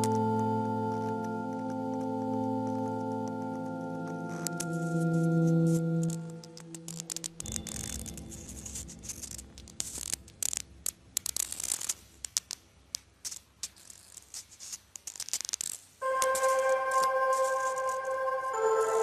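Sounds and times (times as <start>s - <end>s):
ambient electronic music: 0.0s - 10.6s, 16.0s - 19.0s
crackling and scratching clicks: 0.0s - 19.0s.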